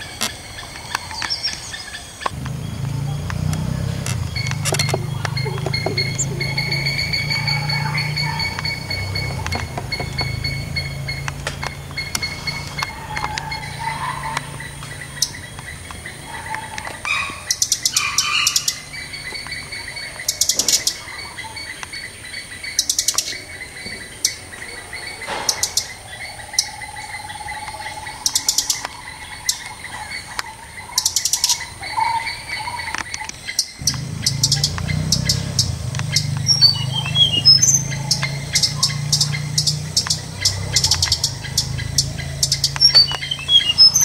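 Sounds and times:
nestlings chirping rapidly: 0.0 - 44.0
high-pitched whine: 2.1 - 15.4
low hum: 2.2 - 15.6.

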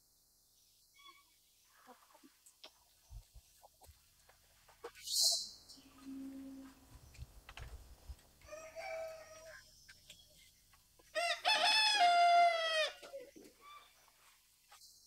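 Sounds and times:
rooster crowing: 8.4 - 9.6, 11.2 - 13.1.

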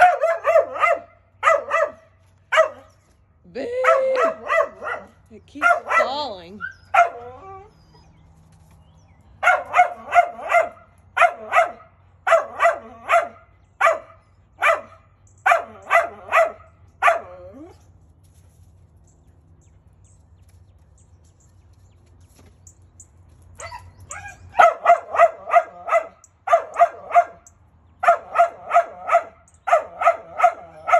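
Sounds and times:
dog barking: 0.0 - 2.9, 3.8 - 6.3, 6.9 - 7.2, 9.4 - 17.4, 23.6 - 30.9.

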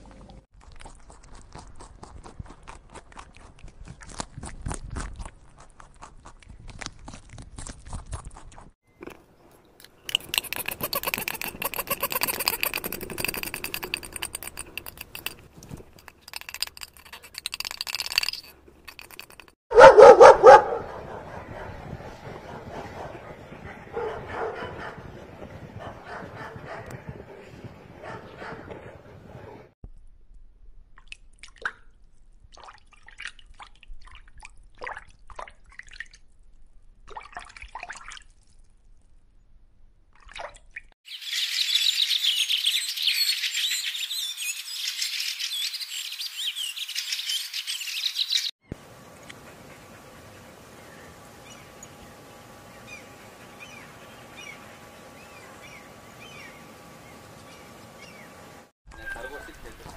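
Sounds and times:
small bird chirping: 9.9 - 15.4, 41.1 - 48.6, 52.7 - 58.4
outdoor background hiss: 44.6 - 58.7.

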